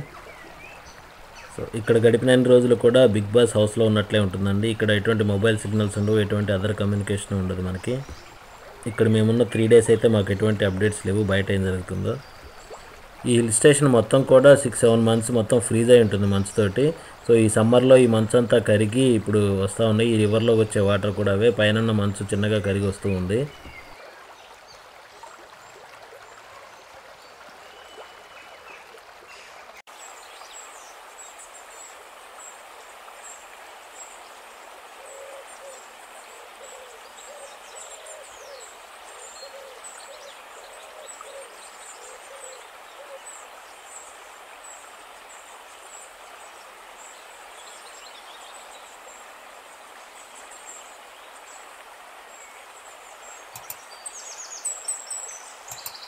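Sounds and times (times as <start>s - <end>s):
mountain creek rushing: 0.0s - 56.0s
faint high bird chirps: 53.5s - 56.0s.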